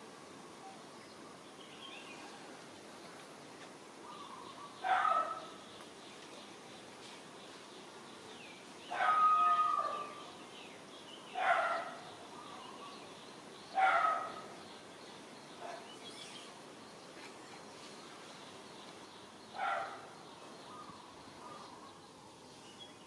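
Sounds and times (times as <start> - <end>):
sharp animal cries: 8.9 - 10.2.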